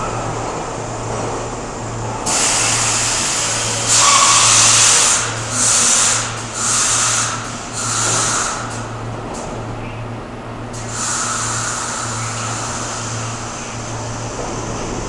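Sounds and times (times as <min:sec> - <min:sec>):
train air brakes hissing: 0:02.2 - 0:08.9, 0:10.8 - 0:14.9.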